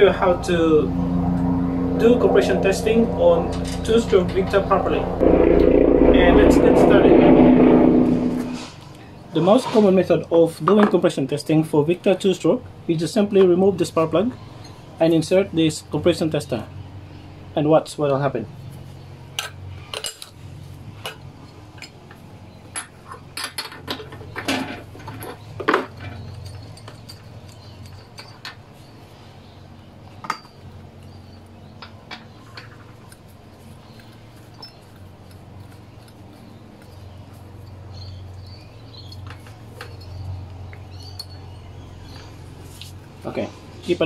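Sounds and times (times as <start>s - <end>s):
steady low hum: 0.0s - 9.2s.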